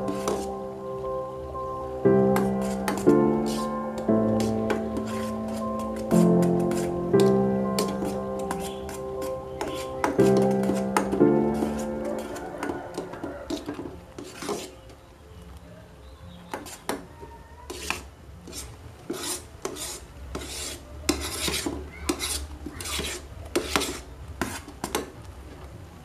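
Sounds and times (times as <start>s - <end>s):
metal spoon scraping a pot: 0.0s - 0.6s, 2.4s - 3.8s, 4.4s - 14.8s, 17.7s - 24.7s.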